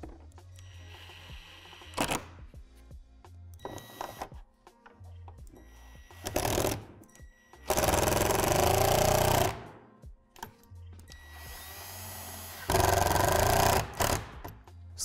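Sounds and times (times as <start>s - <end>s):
impact driver hammering: 7.7s - 9.8s, 12.4s - 14.6s.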